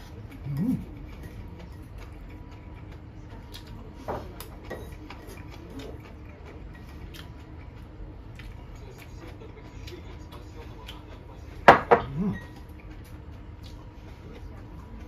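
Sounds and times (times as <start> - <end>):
low room hum: 0.0 - 15.0.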